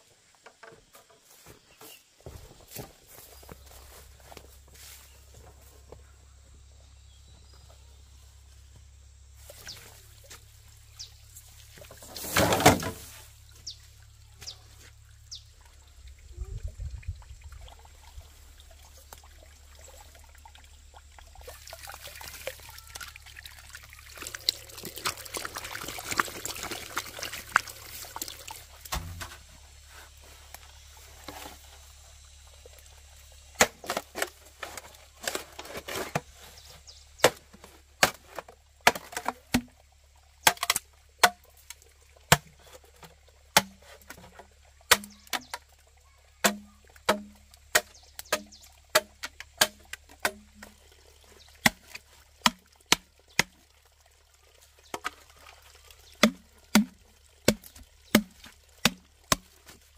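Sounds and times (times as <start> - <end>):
water pouring: 15.0 - 36.4, 46.9 - 59.9.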